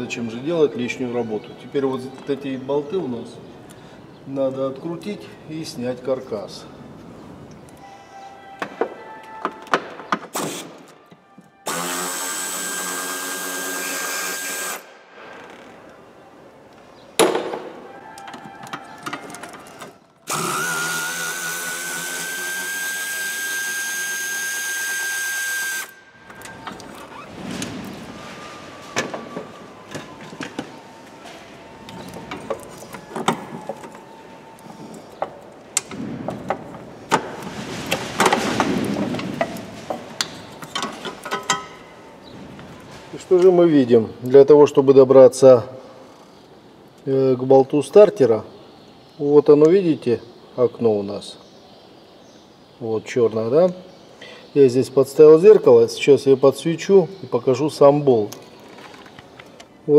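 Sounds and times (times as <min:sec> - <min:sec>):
power drill running: 0:11.7 - 0:14.9, 0:20.3 - 0:26.0.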